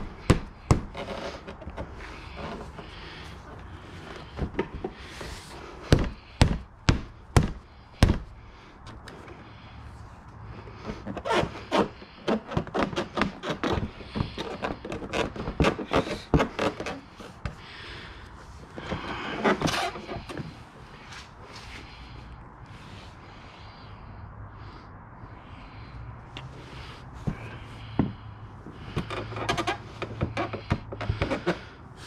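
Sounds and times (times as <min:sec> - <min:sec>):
scrape: 0:05.0 - 0:05.7, 0:19.0 - 0:21.9.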